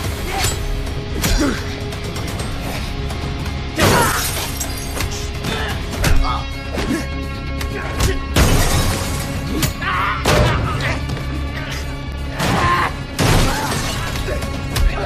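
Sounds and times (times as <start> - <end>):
action film score music: 0.0 - 15.0.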